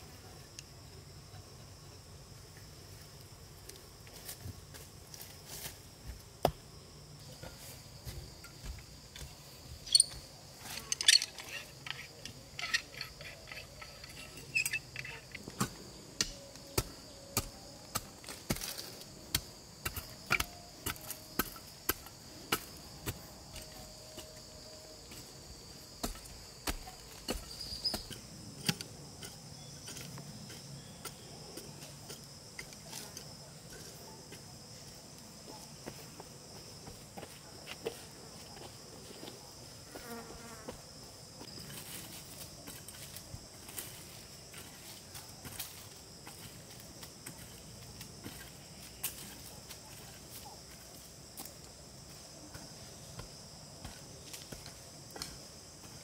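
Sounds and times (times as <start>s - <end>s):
insect chorus: 0.0s - 56.0s
hoe chopping into soil: 15.4s - 24.3s, 26.0s - 33.1s.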